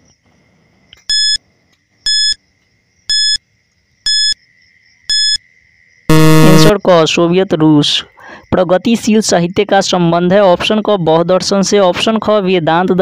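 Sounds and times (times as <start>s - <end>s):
short electronic beeps: 1.1s - 1.4s, 2.1s - 2.4s, 3.1s - 3.4s, 4.1s - 4.4s, 5.1s - 5.4s, 6.1s - 6.7s
faint high-pitched tone: 6.1s - 6.8s.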